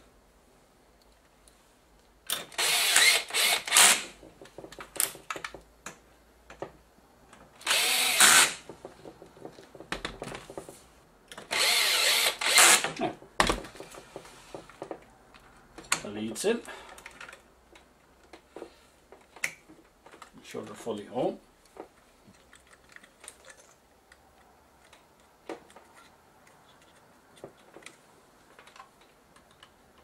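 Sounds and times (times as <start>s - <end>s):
electric screwdriver running: 2.5s - 4.1s, 7.6s - 8.6s, 11.5s - 13.0s.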